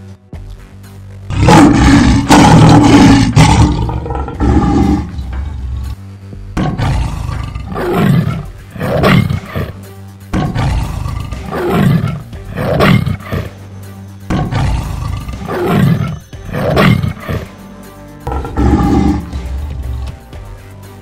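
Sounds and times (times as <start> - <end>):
background music: 0.0 - 21.0
lion and tiger roars: 1.3 - 6.0, 6.6 - 13.6, 14.3 - 17.6, 18.3 - 19.4.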